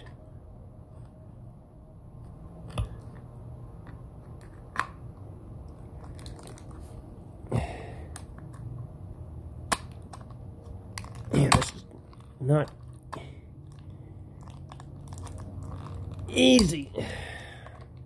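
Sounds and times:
plastic casing clicking and cracking: 0:09.7 - 0:13.1.

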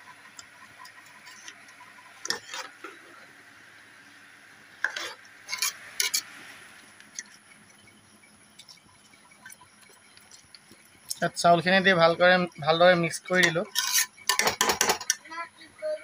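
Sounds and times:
spoon scraping rice in pot: 0:00.9 - 0:03.0, 0:04.8 - 0:06.3, 0:13.4 - 0:15.2
spoon clinking against metal pot: 0:13.4 - 0:15.2.

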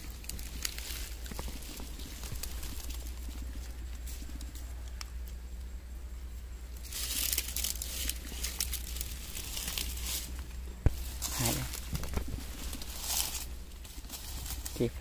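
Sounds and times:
plastic bag crinkling: 0:00.0 - 0:04.5, 0:06.8 - 0:10.4.

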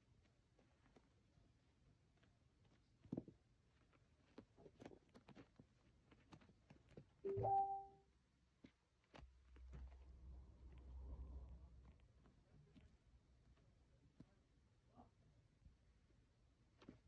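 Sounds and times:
kitten tapping and scuffing on carpet: 0:00.0 - 0:07.2, 0:08.5 - 0:14.8
short clear musical note: 0:07.3 - 0:07.9.

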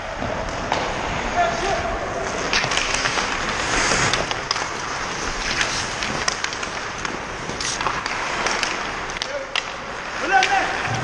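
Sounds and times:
skates scraping on ice: 0:00.0 - 0:11.0
hockey stick and puck clicks: 0:02.2 - 0:11.0.

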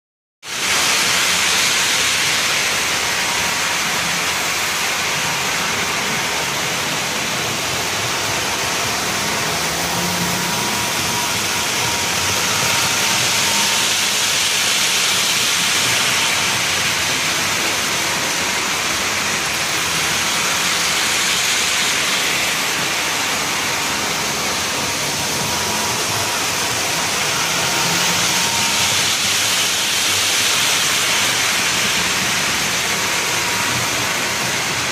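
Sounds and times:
model trains rolling on track: 0:00.4 - 0:34.9
faint steady whine: 0:00.5 - 0:34.9.

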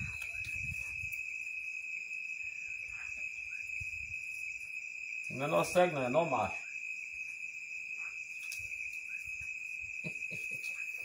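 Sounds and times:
high-pitched insect trill: 0:00.0 - 0:11.0.

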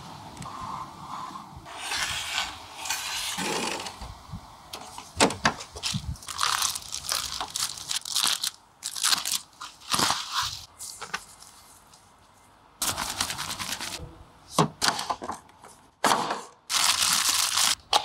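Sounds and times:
plastic wrapping crinkling: 0:05.8 - 0:12.0, 0:16.7 - 0:17.8.

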